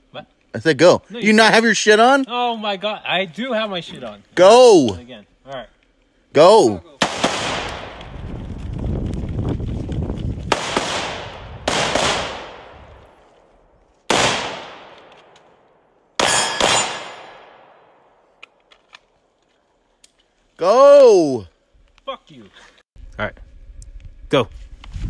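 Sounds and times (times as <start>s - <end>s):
rifle shot: 7.0s - 8.1s, 10.5s - 12.9s, 14.1s - 15.4s, 16.2s - 18.2s
handgun shots echoing: 16.2s - 18.6s.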